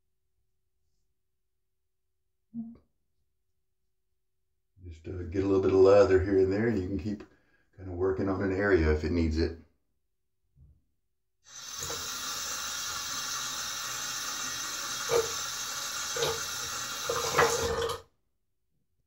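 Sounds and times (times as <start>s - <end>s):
sink tap running: 11.5s - 18.0s.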